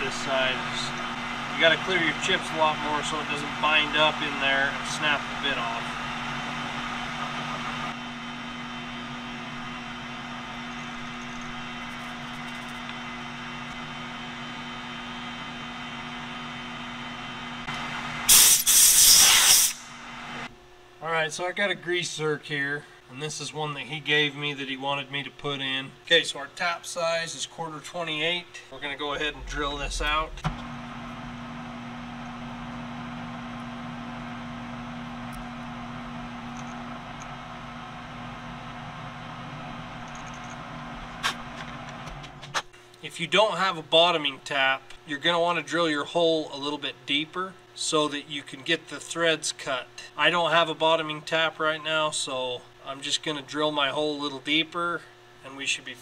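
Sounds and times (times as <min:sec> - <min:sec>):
metal lathe humming: 0:00.0 - 0:18.3
drilling hiss: 0:18.2 - 0:20.5.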